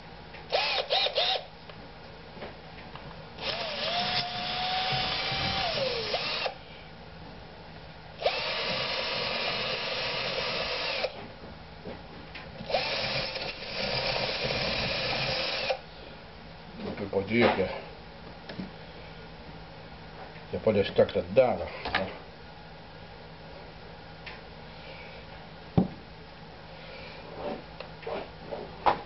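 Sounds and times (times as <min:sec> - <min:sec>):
cordless drill motor: 0:00.5 - 0:01.5, 0:03.4 - 0:06.6, 0:08.2 - 0:11.2, 0:12.6 - 0:15.8
drill trigger blips: 0:03.4 - 0:06.6.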